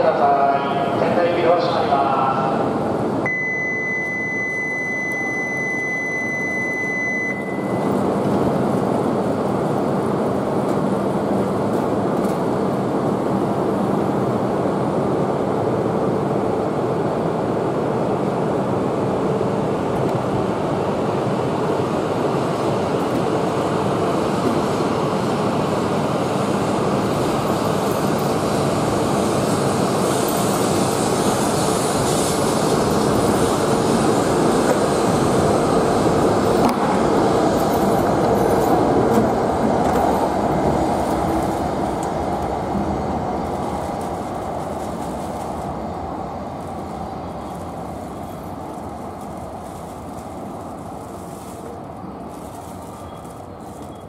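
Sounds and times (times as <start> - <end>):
steady high beep: 3.3 - 8.0
train rushing past: 7.6 - 53.6.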